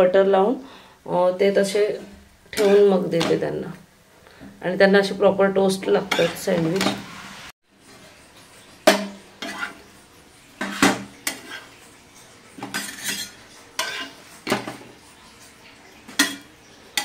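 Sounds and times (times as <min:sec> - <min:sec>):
metal tongs clanking on griddle: 0:02.5 - 0:03.3, 0:06.1 - 0:07.0, 0:12.6 - 0:14.7, 0:16.1 - 0:17.0.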